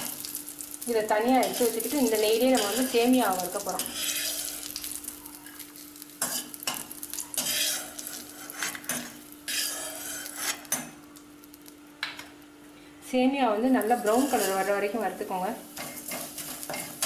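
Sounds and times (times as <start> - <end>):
faint sizzle of hot oil: 0.0 - 17.0
metal spoon scraping a pan: 2.5 - 3.0, 3.7 - 4.7, 6.2 - 11.0, 14.0 - 14.8, 15.8 - 17.0.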